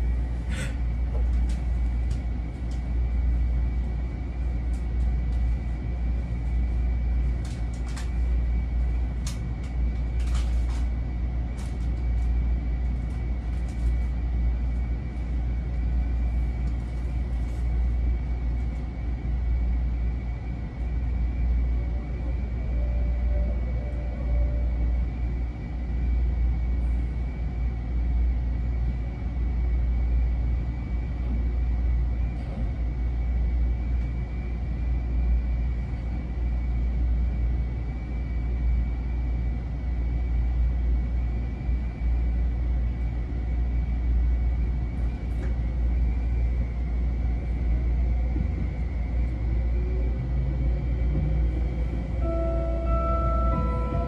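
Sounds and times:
train equipment humming: 0.0 - 54.0
faint high whine: 21.4 - 26.8, 51.6 - 54.0.

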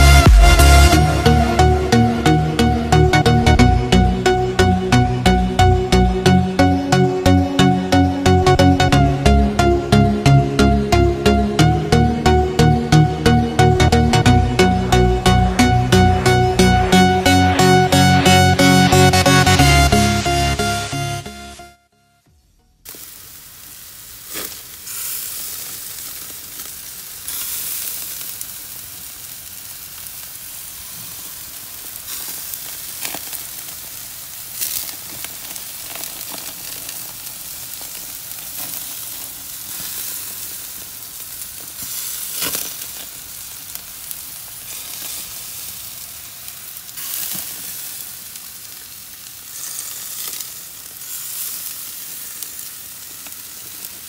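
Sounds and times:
meat sizzling on grill: 22.9 - 54.0.

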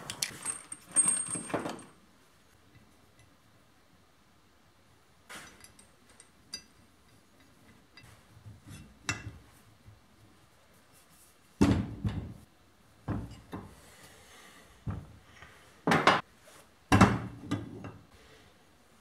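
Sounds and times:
objects knocking and clunking: 11.6 - 13.8, 14.8 - 15.2, 15.8 - 16.3, 16.9 - 18.1.

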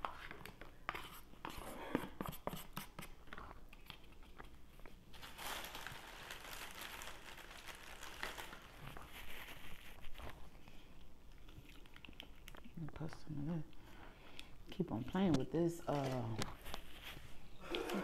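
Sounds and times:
plastic bag rustling: 5.1 - 10.6, 15.7 - 18.0.

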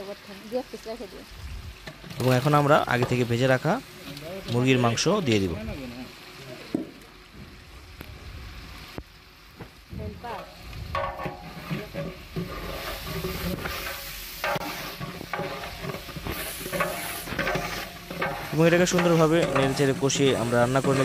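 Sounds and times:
chicken sizzling in oil: 0.0 - 21.0
spatula scraping a pot: 11.0 - 21.0.

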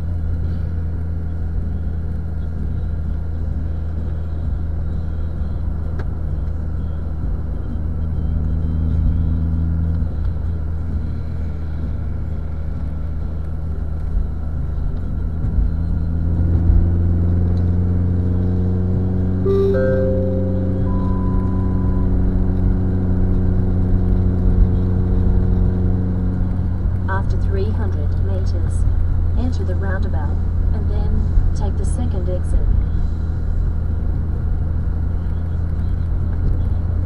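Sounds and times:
car engine and tyre drone: 0.0 - 37.0
high rising hum: 19.4 - 23.8.

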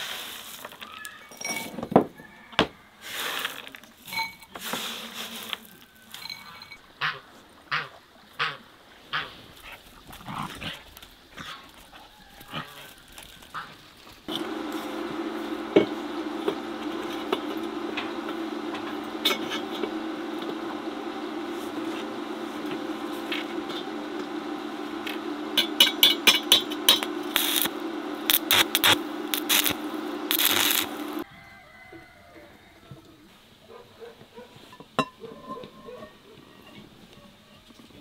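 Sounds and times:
welding arc crackling: 13.5 - 31.2
welder humming: 14.3 - 31.3.

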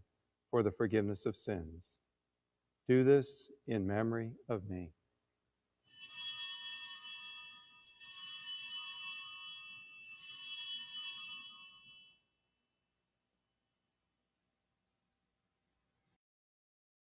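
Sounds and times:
altar bells jingling: 5.8 - 12.4.

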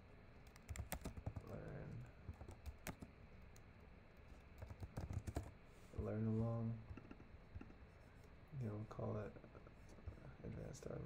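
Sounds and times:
typing on keyboard: 0.4 - 3.1, 4.6 - 5.5.

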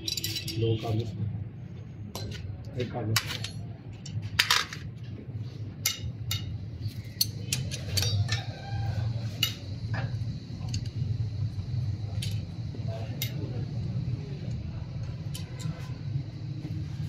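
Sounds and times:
metallic tool clicks and clinks: 0.0 - 0.6, 5.8 - 8.5.

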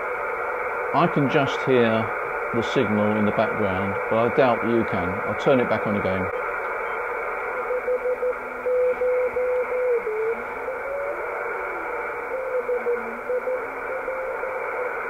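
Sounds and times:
radio band hiss: 0.0 - 15.0
morse code tone: 2.9 - 14.9.

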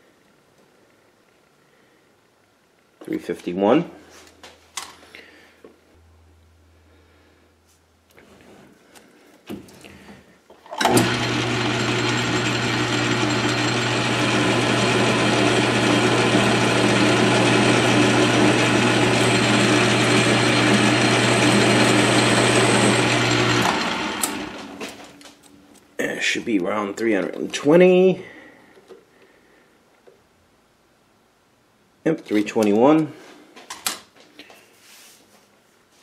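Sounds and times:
lathe running with a hum: 10.8 - 25.0.

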